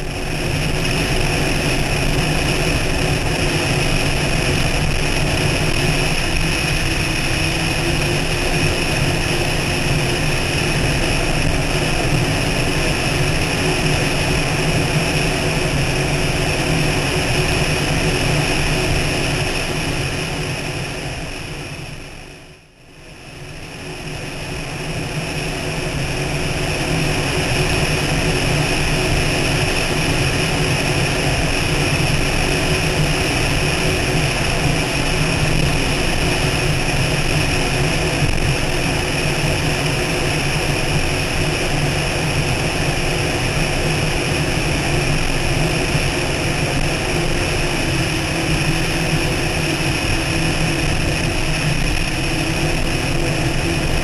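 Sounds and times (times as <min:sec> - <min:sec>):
boat engines roaring: 0:00.0 - 0:20.2
rushing air: 0:00.0 - 0:22.4, 0:23.1 - 0:54.0.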